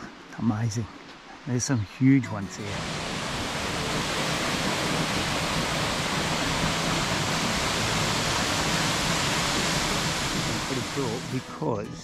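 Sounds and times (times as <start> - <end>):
waterfall roar: 2.4 - 11.6.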